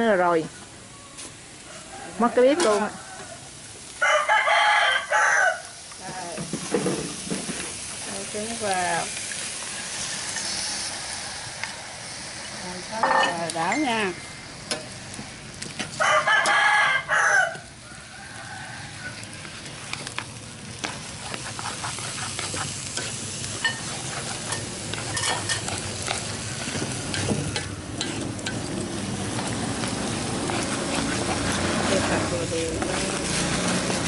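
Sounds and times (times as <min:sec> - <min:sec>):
food sizzling in wok: 0:00.0 - 0:34.0
rooster crowing: 0:01.6 - 0:05.8, 0:16.0 - 0:19.4.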